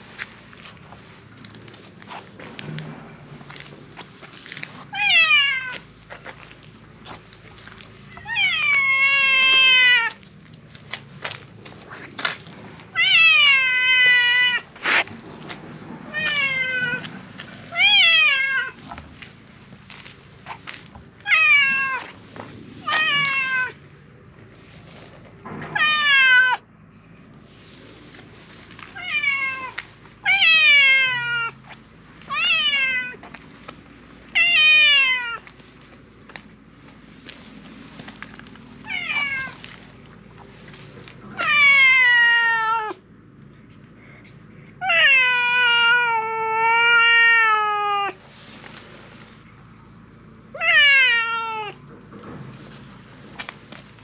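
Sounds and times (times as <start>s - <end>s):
cat meowing loudly: 4.9s - 5.8s, 8.1s - 10.2s, 12.9s - 14.7s, 16.1s - 17.1s, 17.7s - 19.0s, 21.2s - 22.1s, 22.8s - 23.8s, 25.8s - 26.6s, 28.9s - 31.6s, 32.3s - 33.2s, 34.4s - 35.4s, 38.8s - 39.6s, 41.3s - 43.0s, 44.8s - 48.2s, 50.6s - 51.8s.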